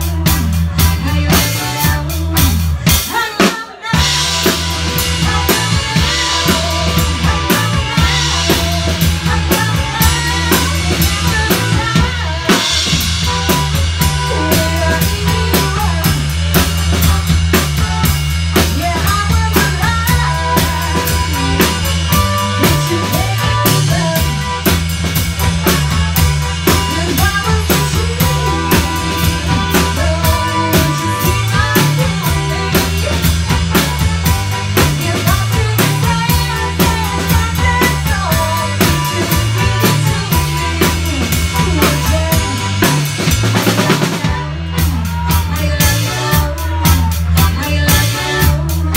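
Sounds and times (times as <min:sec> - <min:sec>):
bass line: 0:00.0 - 0:48.9
drum kit beating: 0:00.0 - 0:48.9
electric guitar: 0:00.0 - 0:48.9.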